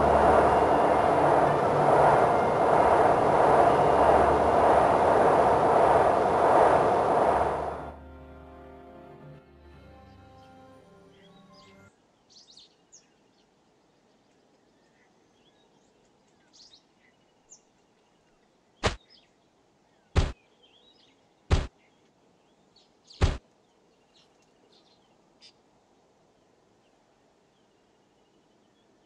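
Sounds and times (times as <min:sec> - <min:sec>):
loud short thumps: 0:20.2 - 0:20.4.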